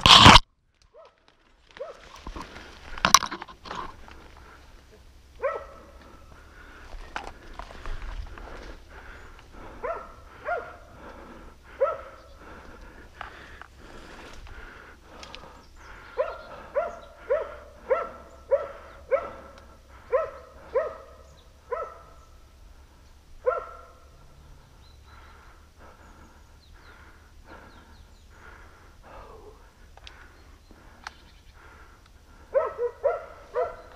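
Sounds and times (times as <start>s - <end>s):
dog barking: 1.8s - 2.0s, 5.4s - 6.0s, 9.8s - 10.9s, 11.8s - 12.3s, 16.2s - 22.2s, 23.4s - 24.1s, 32.5s - 33.9s
distant dog barks: 1.8s - 2.1s, 5.4s - 6.1s, 9.7s - 11.0s, 11.7s - 12.4s, 16.1s - 22.3s, 23.4s - 24.2s, 32.5s - 33.9s.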